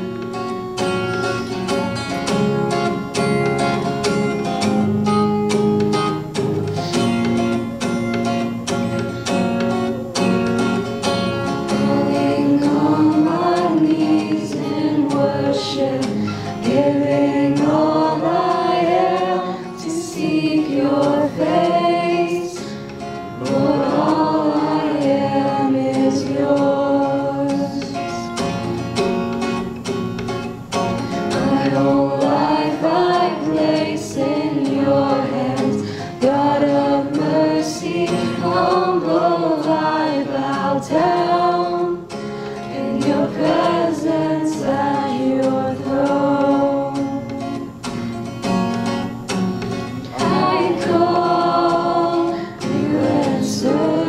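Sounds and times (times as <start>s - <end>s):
acoustic guitar strumming: 0.0s - 54.0s
woman singing: 11.7s - 22.8s, 23.4s - 28.3s, 31.3s - 42.1s, 42.7s - 47.7s, 50.0s - 54.0s.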